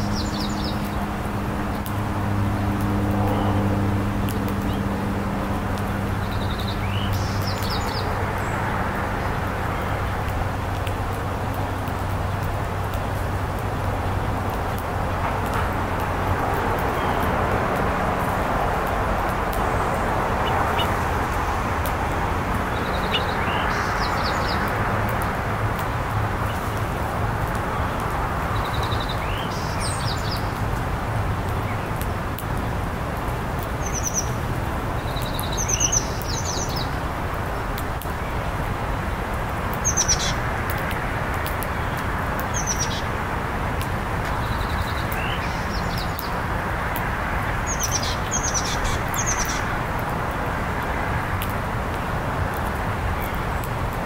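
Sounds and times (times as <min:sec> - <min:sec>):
songbirds chirping: 0:00.0 - 0:54.0.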